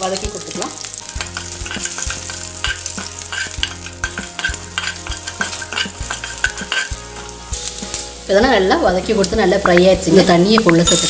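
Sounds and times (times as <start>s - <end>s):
spices sizzling in hot oil: 0.0s - 11.0s
metal ladle scraping pan: 1.0s - 8.1s.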